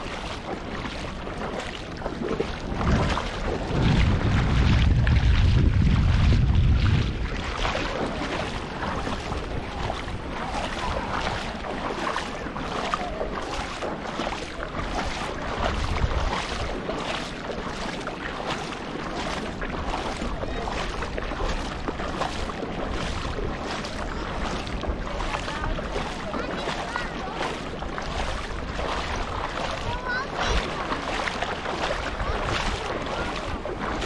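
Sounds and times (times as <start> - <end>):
sea water sloshing and splashing: 0.0 - 34.0
wind rumble on microphone: 0.0 - 34.0.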